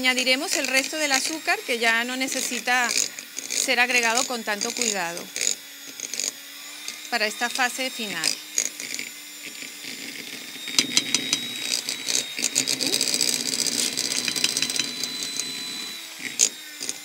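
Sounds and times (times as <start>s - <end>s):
hand mixer motor whine: 0.0s - 17.0s
beaters rattling in glass bowl: 10.7s - 17.0s.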